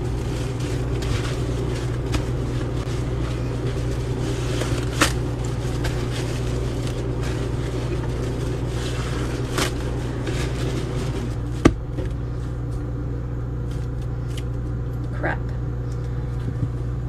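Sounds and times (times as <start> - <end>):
wet squishes of sponge: 0.0 - 11.5
steady low hum: 0.0 - 17.0.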